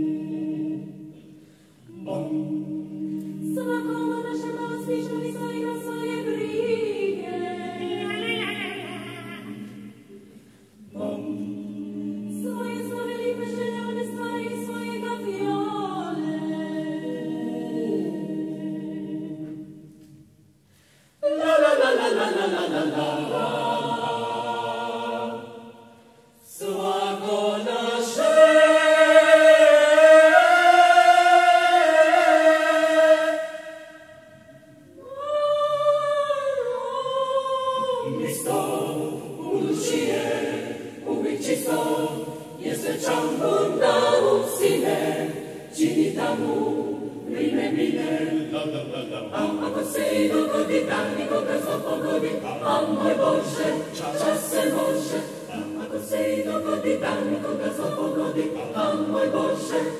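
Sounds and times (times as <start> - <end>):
mixed choir singing: 0.0 - 20.2, 21.2 - 59.9
singers breathing: 1.2 - 1.9, 10.0 - 10.8, 20.6 - 21.2.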